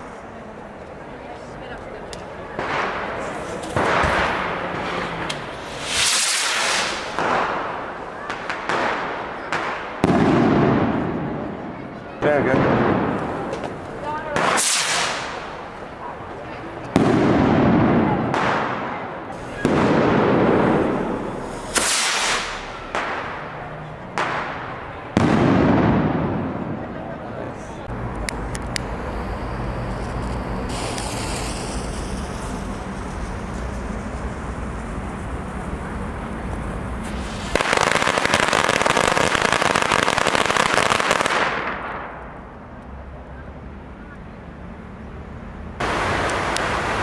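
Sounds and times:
firework bangs echoing: 0:02.5 - 0:15.9, 0:16.9 - 0:27.0, 0:37.0 - 0:42.2.

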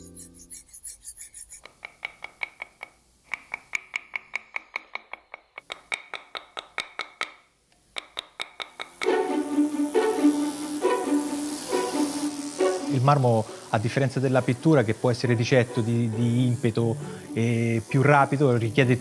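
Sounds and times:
mallet striking chisel: 0:01.6 - 0:09.3
background music: 0:09.0 - 0:19.0.

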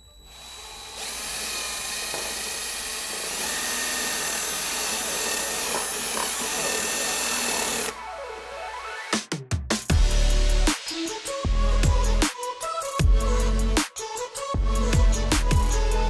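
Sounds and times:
cordless drill drilling: 0:00.0 - 0:08.5.

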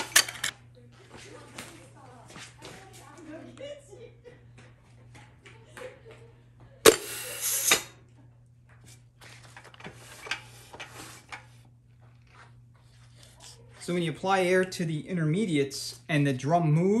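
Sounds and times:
compressed air blast: 0:06.9 - 0:07.9.

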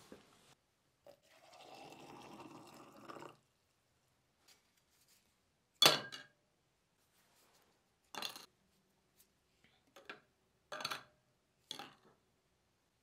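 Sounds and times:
water pouring into glass beaker: 0:01.2 - 0:03.5.

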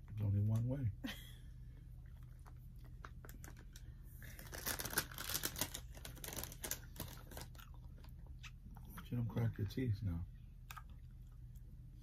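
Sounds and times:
hard candy crunching in teeth: 0:02.0 - 0:09.1.

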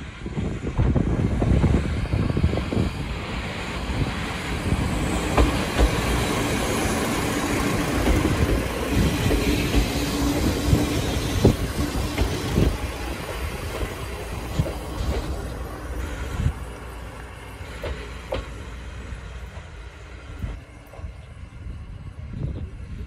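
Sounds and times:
diesel railcar engine running: 0:00.0 - 0:23.0
train wheels clacking over joints: 0:04.0 - 0:21.2.

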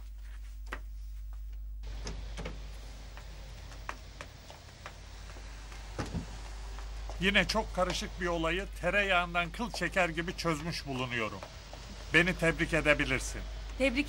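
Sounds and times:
steady outdoor hiss: 0:01.8 - 0:14.0.

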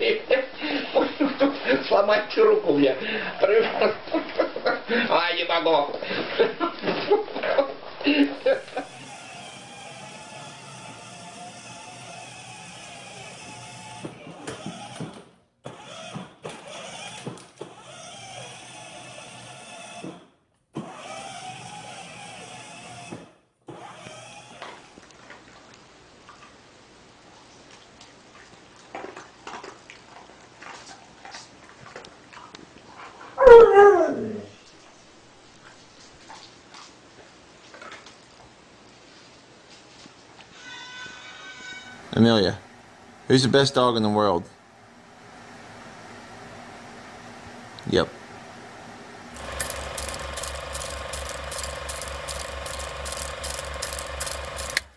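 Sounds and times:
faint clicks and ticks: 0:49.4 - 0:54.9.

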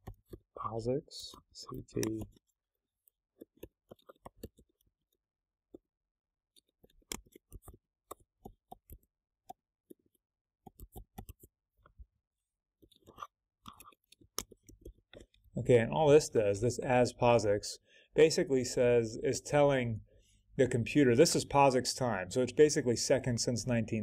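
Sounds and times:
keyboard typing: 0:01.8 - 0:02.4, 0:06.6 - 0:09.0, 0:10.0 - 0:11.5, 0:12.8 - 0:15.4.

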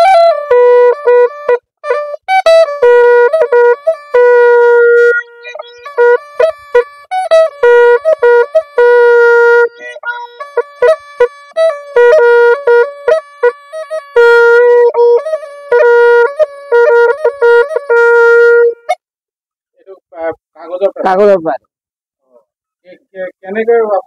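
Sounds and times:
buzzy hornpipe melody: 0:00.0 - 0:19.0.

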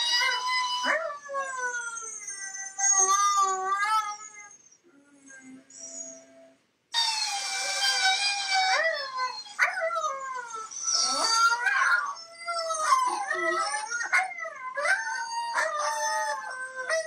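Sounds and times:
dog howling and yowling: 0:00.0 - 0:04.6, 0:07.0 - 0:17.0.

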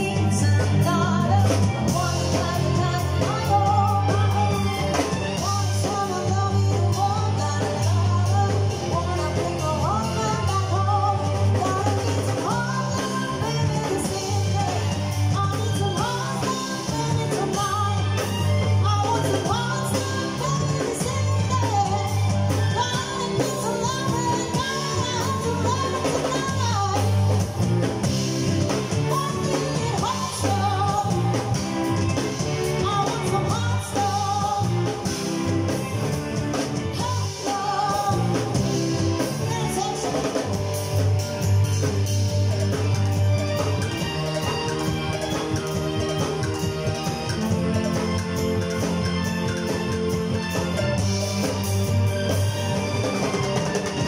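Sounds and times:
woman singing into a microphone: 0:00.0 - 0:27.7, 0:28.5 - 0:35.5, 0:36.7 - 0:40.7
drum kit: 0:00.0 - 0:54.0
electric bass: 0:00.0 - 0:54.0
electric guitar: 0:00.0 - 0:54.0
keyboard: 0:00.0 - 0:54.0.

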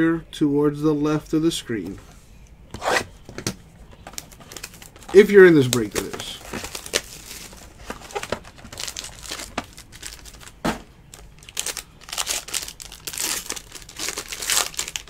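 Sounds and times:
foil wrapper crinkling: 0:04.1 - 0:15.0.

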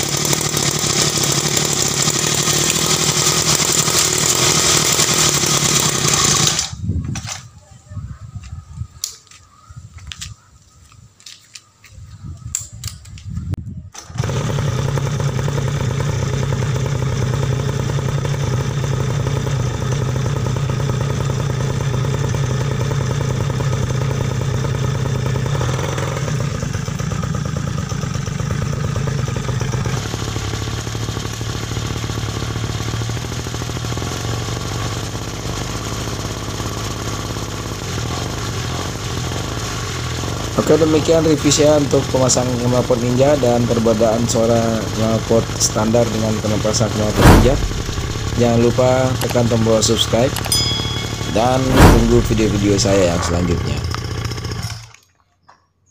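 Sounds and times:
small two-stroke engine running: 0:00.0 - 0:06.8, 0:14.0 - 0:55.1
drive chain noise: 0:47.5 - 0:55.0.

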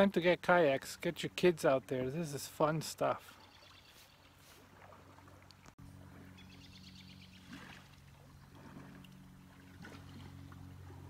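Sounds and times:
car engine and road hum: 0:05.2 - 0:11.0.

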